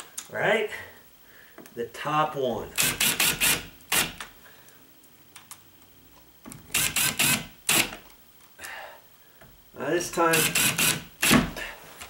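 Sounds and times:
cordless drill bursts: 2.8 - 4.2, 6.7 - 8.0, 10.3 - 11.5.

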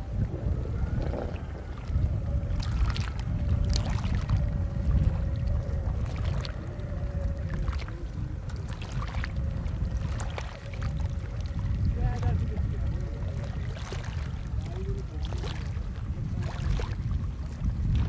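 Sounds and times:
faint continuous hum: 0.0 - 18.0
steady low rumble: 0.0 - 18.0
water splashing: 0.0 - 18.0.

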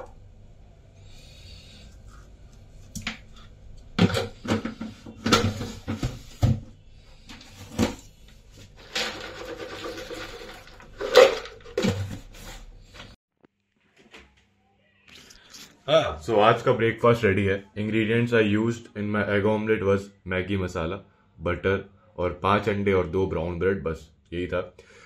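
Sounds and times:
plastic container clattering: 4.0 - 6.6, 7.4 - 12.6
cereal rattling into bowl: 8.8 - 12.2.

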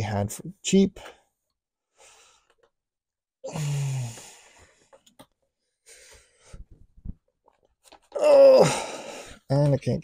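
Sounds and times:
man sighing: 3.4 - 4.7, 8.1 - 9.4.

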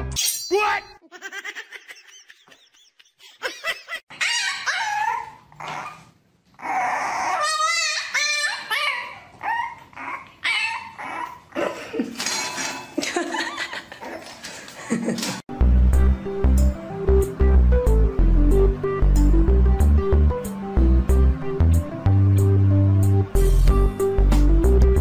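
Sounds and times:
dogs whining and yelping: 4.1 - 11.7.

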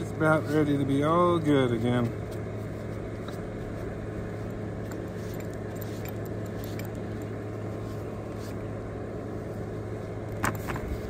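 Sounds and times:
low mechanical hum: 0.0 - 11.0
faint clicks and rustles: 1.7 - 8.7.

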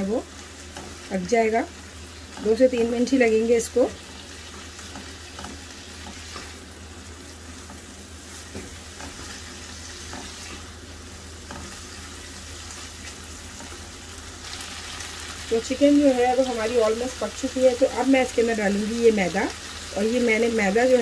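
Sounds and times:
food sizzling in oil: 0.0 - 21.0
spatula scraping and tapping pan: 7.6 - 10.6.

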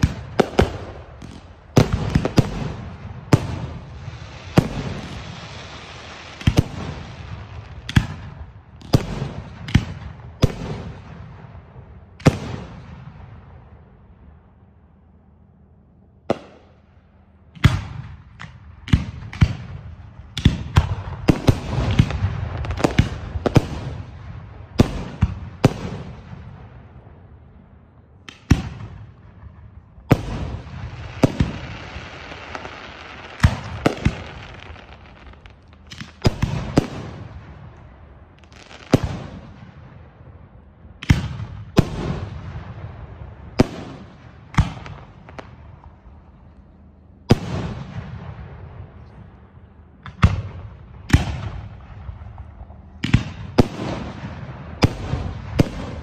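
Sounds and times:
firework shells booming: 0.0 - 5.6, 28.3 - 40.0
steady hiss: 3.6 - 8.4.

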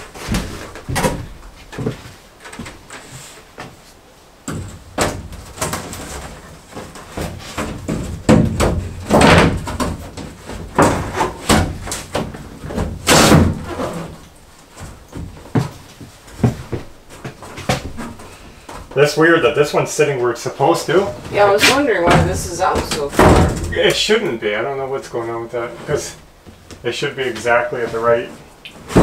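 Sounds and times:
hollow knocks of shower panels: 0.0 - 2.8, 4.5 - 14.2, 21.2 - 24.0
footsteps in shower base: 0.0 - 13.0, 13.6 - 19.1.

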